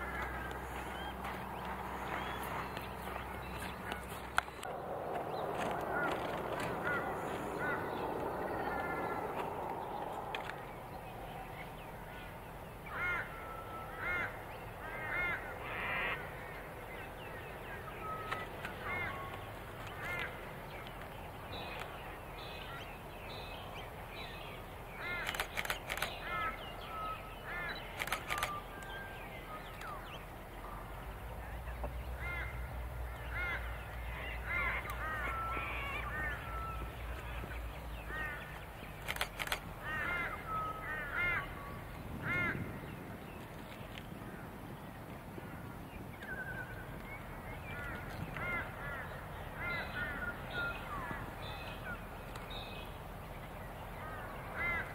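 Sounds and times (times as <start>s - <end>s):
birds calling: 0.0s - 44.4s, 45.4s - 54.9s
sharp clicks: 25.2s - 26.2s, 27.9s - 29.0s, 39.0s - 39.7s.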